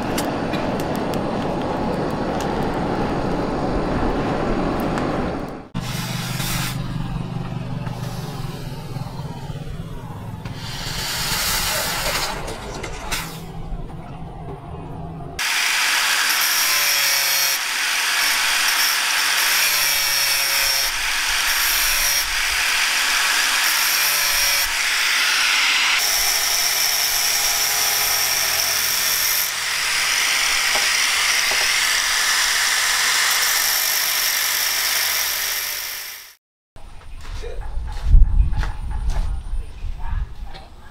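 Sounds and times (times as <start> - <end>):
angle grinder cutting steel pipe: 5.8 - 7.0, 10.5 - 12.4, 15.4 - 36.4.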